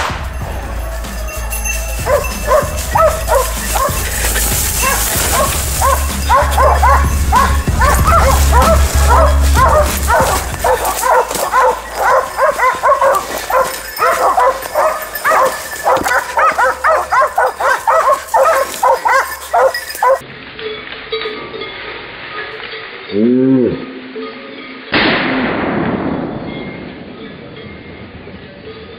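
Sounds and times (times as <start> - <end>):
dogs baying rapidly: 0.4 - 20.2.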